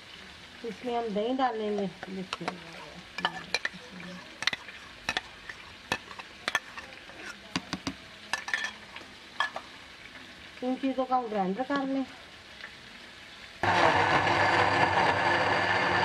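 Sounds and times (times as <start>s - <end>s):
food sizzling in oil: 0.0s - 16.0s.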